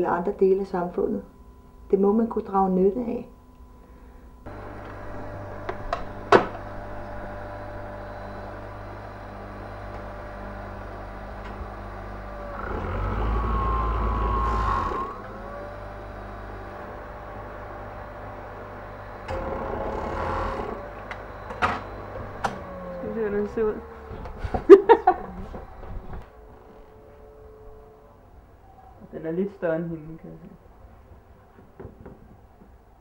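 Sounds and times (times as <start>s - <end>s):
sewing machine stitching whine: 4.5s - 17.1s, 19.0s - 26.2s
sewing machine motor humming: 4.5s - 17.7s, 19.2s - 21.3s.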